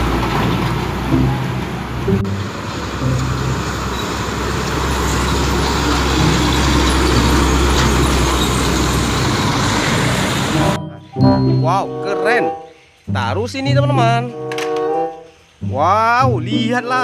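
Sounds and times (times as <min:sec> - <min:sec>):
truck engine rumble: 0:00.0 - 0:12.3
road noise: 0:00.0 - 0:15.9.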